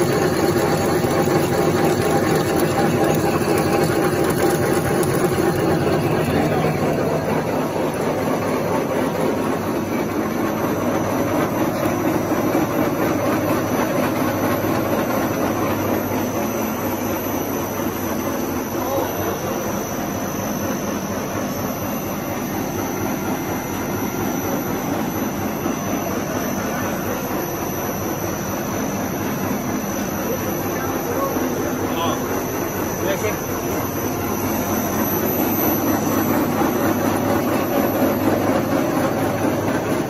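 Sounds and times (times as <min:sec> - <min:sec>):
machinery din of motors and conveyors: 0:00.0 - 0:40.0.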